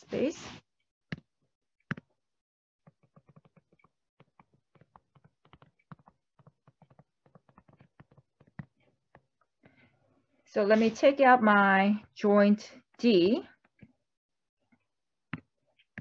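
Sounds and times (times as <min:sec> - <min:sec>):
stylus tapping on tablet: 0:01.1 - 0:02.2, 0:02.8 - 0:09.8.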